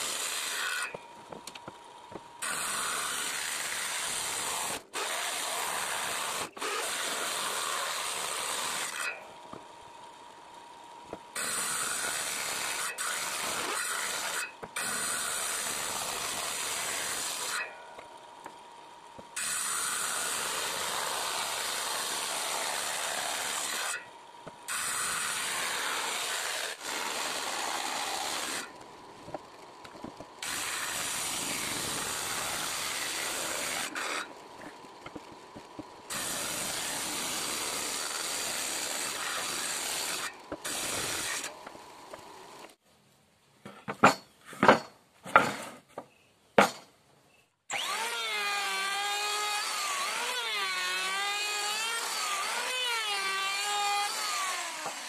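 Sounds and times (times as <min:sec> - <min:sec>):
table saw cutting wood: 0:00.0 - 0:01.7, 0:02.4 - 0:09.6, 0:11.3 - 0:18.0, 0:19.3 - 0:42.8, 0:47.7 - 0:55.0
electric planer whining: 0:30.4 - 0:42.7, 0:47.7 - 0:55.0.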